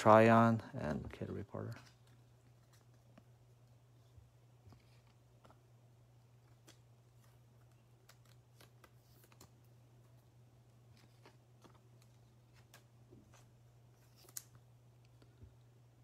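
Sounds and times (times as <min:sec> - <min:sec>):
trading cards clicking and rustling: 0:06.3 - 0:10.1, 0:10.9 - 0:15.2.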